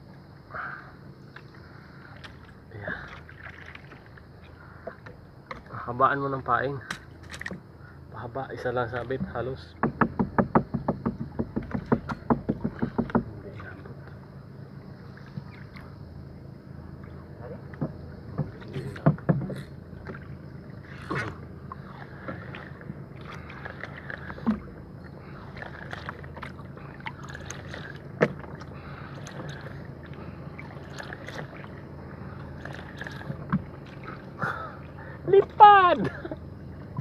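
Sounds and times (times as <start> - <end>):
low background rumble: 0.0 - 37.0.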